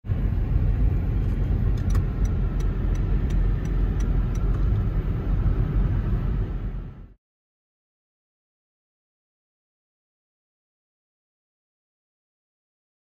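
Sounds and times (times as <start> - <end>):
car road and engine rumble: 0.0 - 7.2.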